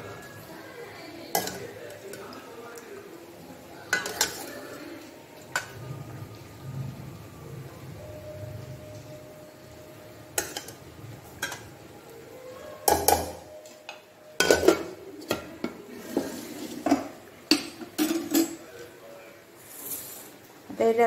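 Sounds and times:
steel ladle clinking and scraping: 3.9 - 4.7, 11.4 - 11.7, 14.4 - 18.6.

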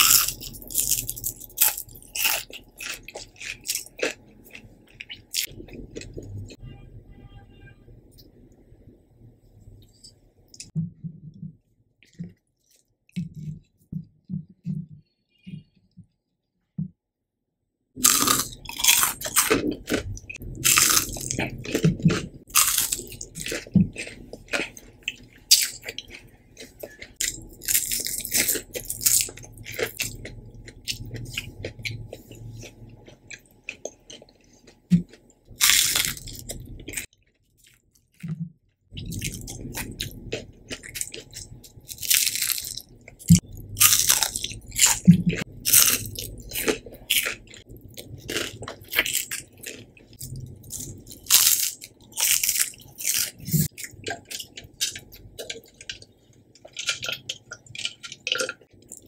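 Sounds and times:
soft chewing: 0.0 - 6.6, 9.5 - 16.1, 18.0 - 59.0
crisp crunches: 39.0 - 55.0.

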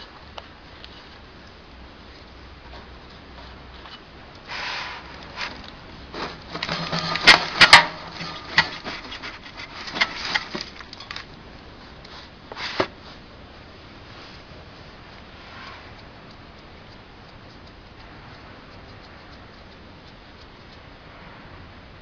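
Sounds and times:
metal clicks and clanks: 6.4 - 11.3.

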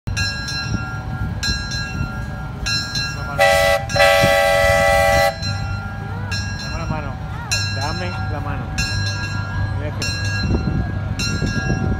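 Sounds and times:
locomotive rumble: 0.1 - 11.9
train horn blasts: 3.4 - 5.6.

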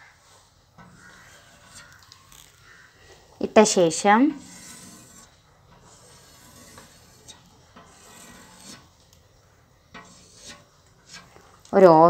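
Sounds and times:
chalk drawing on blackboard: 0.9 - 2.0, 3.6 - 8.9, 10.0 - 11.4.

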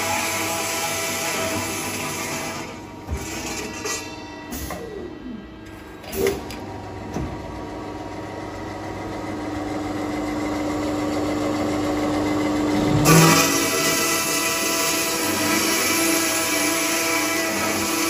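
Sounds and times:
circular saw cutting steel tubes: 0.0 - 5.4, 13.0 - 18.0.

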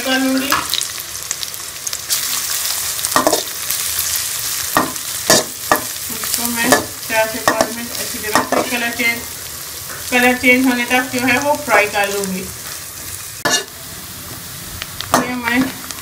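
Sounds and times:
food sizzling in ghee: 0.0 - 16.0
metal spatula scraping pan: 13.4 - 13.7.

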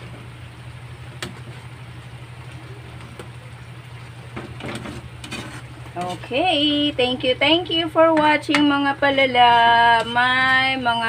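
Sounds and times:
steady low hum: 0.0 - 11.0
ladle stirring thick curry: 4.5 - 6.3
scraping and clatter: 4.5 - 6.3.

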